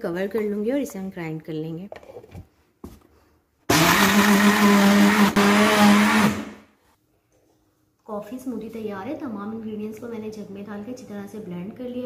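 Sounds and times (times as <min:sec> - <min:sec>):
blender blending ice: 0:03.7 - 0:06.6.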